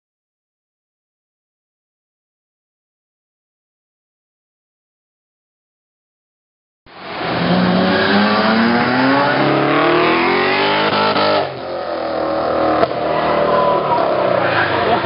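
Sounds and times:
car engine revving hard: 7.0 - 15.0.

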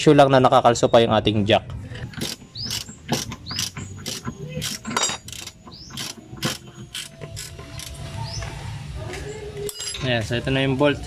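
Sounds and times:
ratchet wrench clicking: 2.1 - 8.0.

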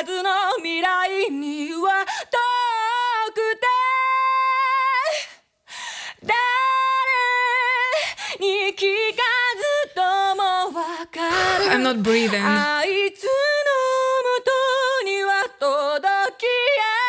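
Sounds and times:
woman singing unaccompanied: 0.0 - 5.0, 6.2 - 17.0
quick breath: 5.1 - 6.2.

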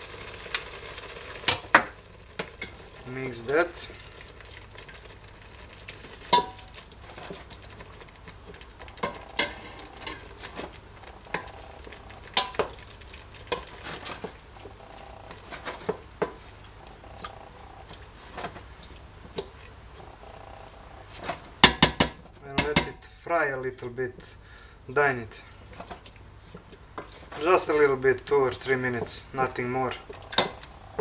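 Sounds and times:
faint sizzle of paste frying: 0.0 - 31.0
wooden spoon stirring paste: 2.4 - 23.0, 24.1 - 31.0
spoon knocking against pot: 6.3 - 6.7, 12.3 - 12.7, 21.6 - 23.0.

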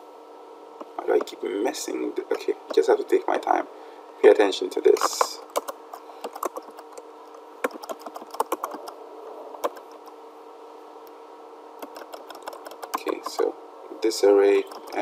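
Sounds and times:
faint steady hum: 0.0 - 15.0
keyboard typing clicks: 5.0 - 9.0, 9.6 - 10.2, 11.8 - 13.5, 14.6 - 15.0.

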